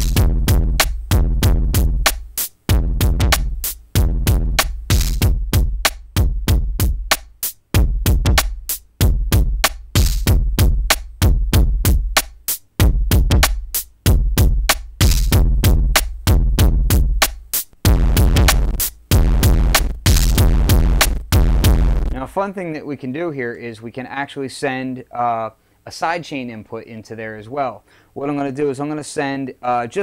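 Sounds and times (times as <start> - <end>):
distorted drum machine beat: 0.0 - 22.3.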